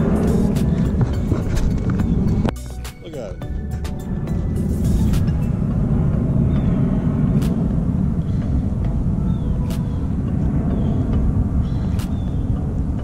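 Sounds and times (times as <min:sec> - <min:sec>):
wind buffeting microphone: 0:00.0 - 0:02.5, 0:03.7 - 0:13.0
sharp clicks: 0:11.9 - 0:12.2.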